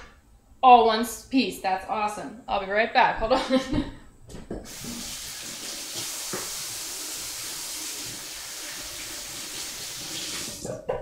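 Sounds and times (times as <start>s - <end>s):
tap water running: 4.5s - 10.8s.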